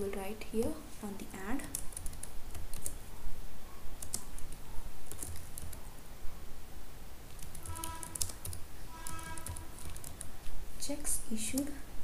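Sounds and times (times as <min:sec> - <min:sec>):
keyboard typing: 0:01.3 - 0:03.0, 0:04.0 - 0:05.8, 0:07.3 - 0:10.5.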